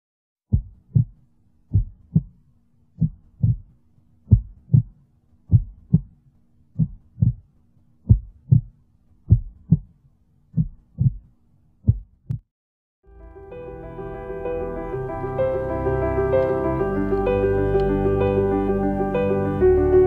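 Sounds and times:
heartbeat thumps: 0.5s - 2.4s, 3.0s - 3.7s, 4.3s - 6.2s, 6.8s - 7.5s, 8.1s - 9.9s, 10.6s - 12.4s
faint low drone: 13.1s - 20.0s.

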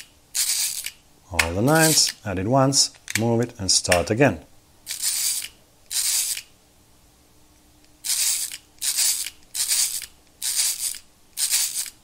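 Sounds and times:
mechanical calculator crank whirring: 0.0s - 1.0s, 4.9s - 6.5s, 8.0s - 12.0s.

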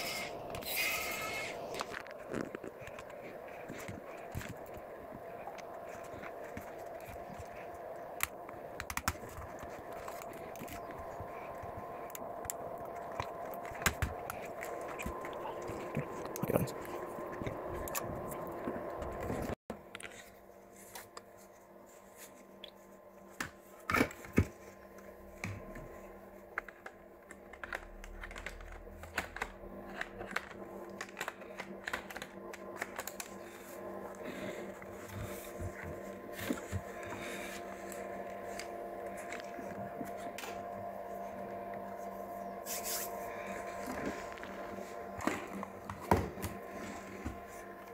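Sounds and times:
steady low hum: 0.0s - 47.9s
laptop keys clicking: 8.2s - 14.5s.

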